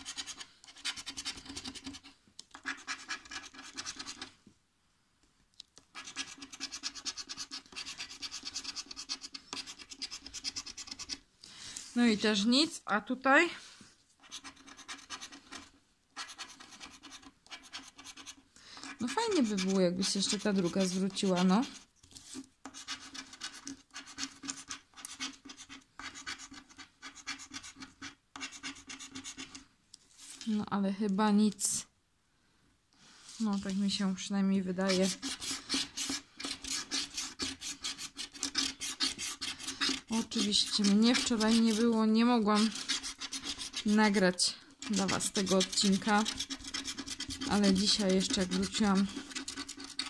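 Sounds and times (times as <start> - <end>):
scratch card being scratched: 0.0 - 4.3, 5.9 - 11.2, 14.2 - 29.6, 34.8 - 44.2, 44.8 - 50.0.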